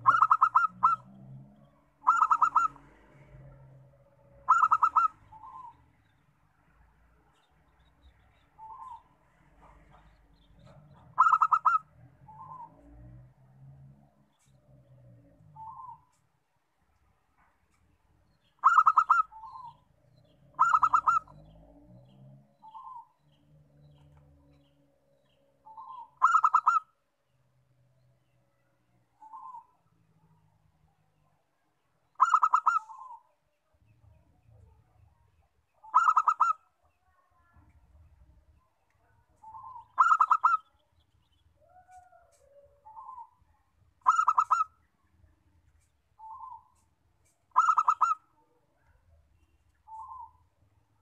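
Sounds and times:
dove cooing: 0:00.0 - 0:01.1, 0:02.0 - 0:03.5, 0:04.3 - 0:05.8, 0:10.6 - 0:12.8, 0:18.6 - 0:19.8, 0:20.5 - 0:21.6, 0:25.6 - 0:26.9, 0:32.2 - 0:33.3, 0:35.8 - 0:36.6, 0:39.4 - 0:40.7, 0:44.0 - 0:44.7, 0:47.5 - 0:48.2.

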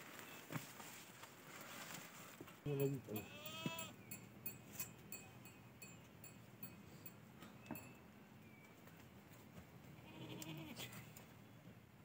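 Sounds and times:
goat bleating: 0:03.1 - 0:04.0, 0:10.0 - 0:11.0.

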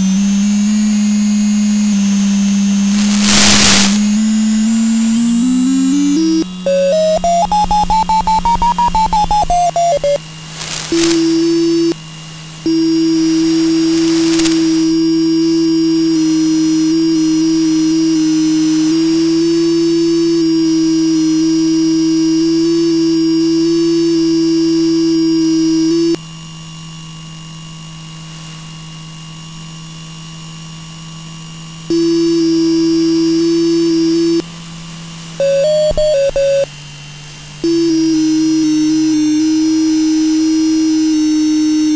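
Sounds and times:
constant hum: 0:00.0 - 0:26.2, 0:31.6 - 0:41.9
steady electronic tone: 0:02.8 - 0:12.0, 0:12.6 - 0:21.0
short bursts of hiss: 0:02.9 - 0:04.2, 0:10.4 - 0:12.0, 0:12.7 - 0:15.2
fast electronic beeping: 0:03.0 - 0:04.1, 0:06.7 - 0:12.0, 0:35.4 - 0:36.7.

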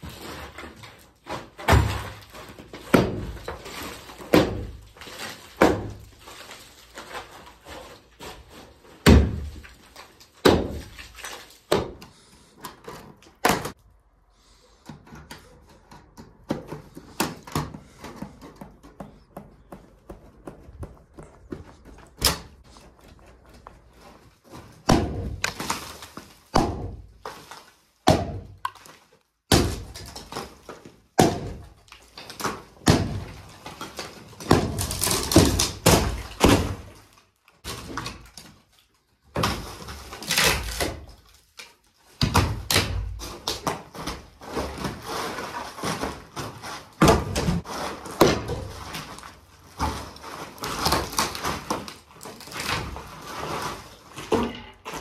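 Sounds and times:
plaster and wood debris crashing: 0:00.0 - 0:13.9, 0:14.8 - 0:55.0.

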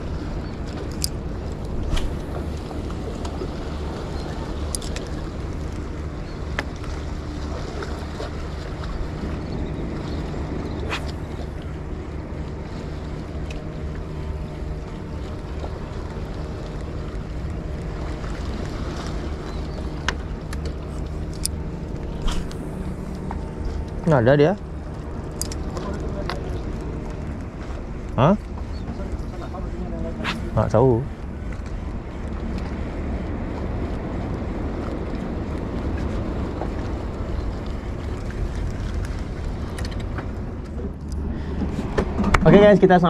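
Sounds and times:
wind on microphone: 0:00.0 - 0:06.4, 0:14.6 - 0:24.4
boat motor running: 0:00.0 - 0:43.0.

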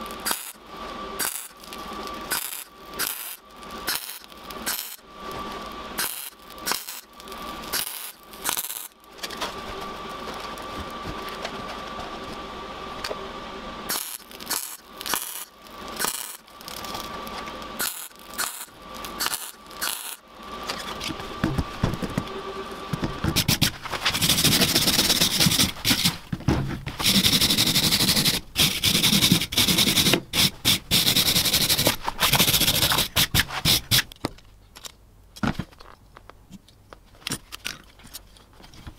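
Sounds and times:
welding arc crackling: 0:00.0 - 0:11.4, 0:13.9 - 0:26.3
harsh steady noise: 0:00.0 - 0:34.1.

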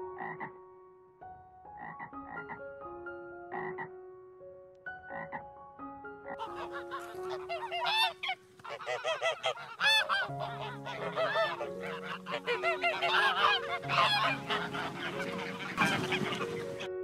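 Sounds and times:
geese honking: 0:06.3 - 0:17.0.

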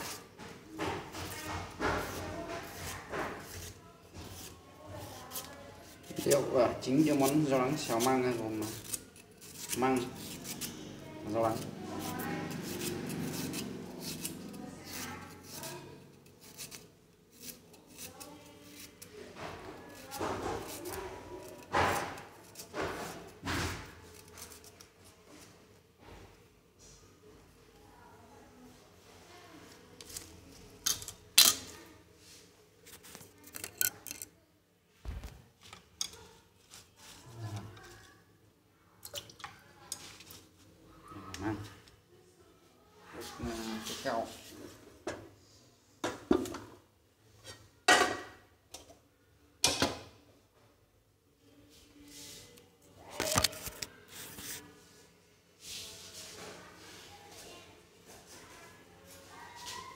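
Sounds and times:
knife cutting bamboo shoot: 0:05.3 - 0:10.8.

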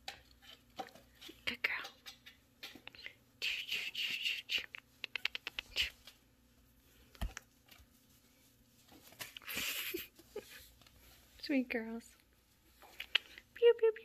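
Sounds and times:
quick clicks: 0:04.6 - 0:05.9.

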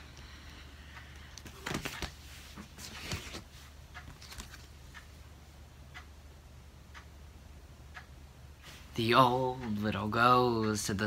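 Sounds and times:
low steady hum: 0:00.0 - 0:11.0
paper rustling: 0:01.4 - 0:04.7.

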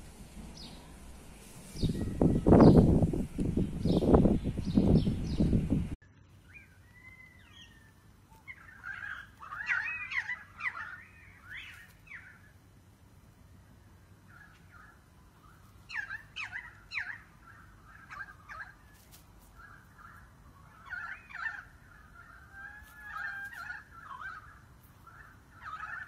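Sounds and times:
poultry calling: 0:06.6 - 0:12.5, 0:14.3 - 0:26.0.

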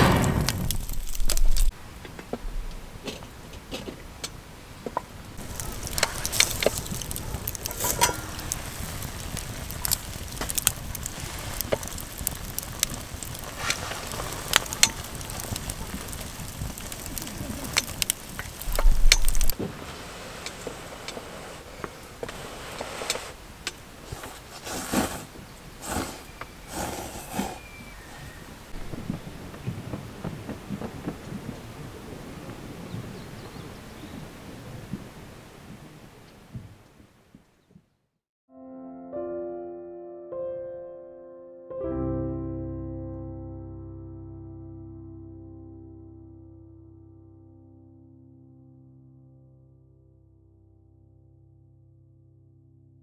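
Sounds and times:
low rumble: 0:00.0 - 0:01.7, 0:05.2 - 0:19.6
wood fire crackling and popping: 0:00.0 - 0:32.7.

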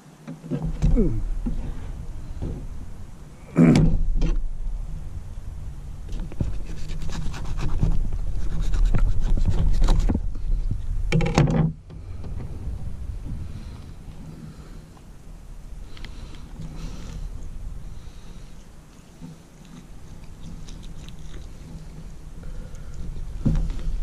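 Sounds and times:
steady low rumble: 0:00.6 - 0:24.0
knife scraping fish: 0:06.5 - 0:10.1.

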